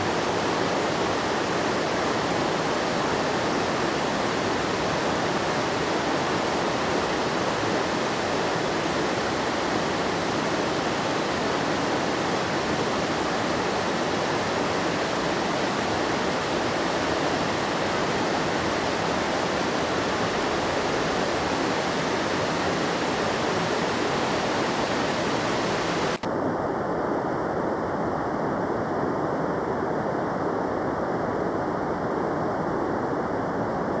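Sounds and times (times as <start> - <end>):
river rushing over rocks: 0.0 - 26.2.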